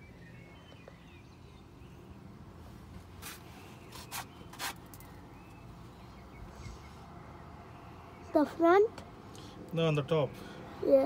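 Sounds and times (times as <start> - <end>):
short rustling noises: 2.6 - 5.1.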